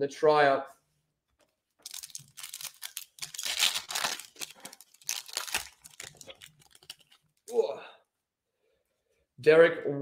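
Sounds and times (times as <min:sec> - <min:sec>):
foil wrapper tearing and crinkling: 0:01.8 - 0:07.4.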